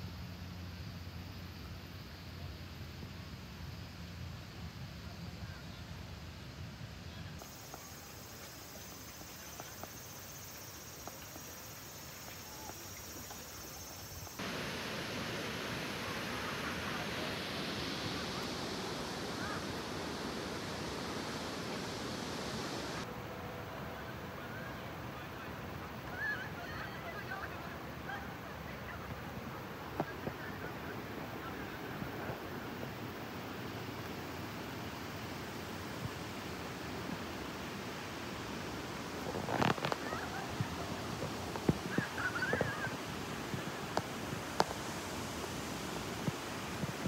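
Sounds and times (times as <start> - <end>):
steady outdoor hiss: 0.0 - 47.0
waterfall rushing: 7.4 - 23.1, 35.5 - 47.0.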